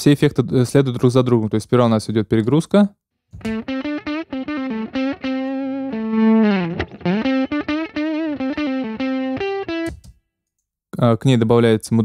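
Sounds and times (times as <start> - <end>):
distorted electric guitar lead: 3.4 - 9.9.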